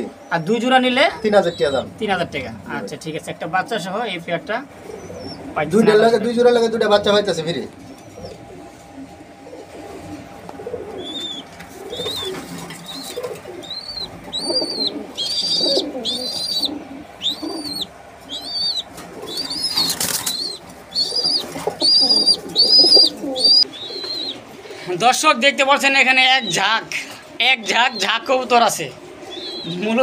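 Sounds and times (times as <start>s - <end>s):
pigeons cooing softly: 0.0s - 25.2s, 25.8s - 30.0s
wings fluttering: 7.8s - 24.7s.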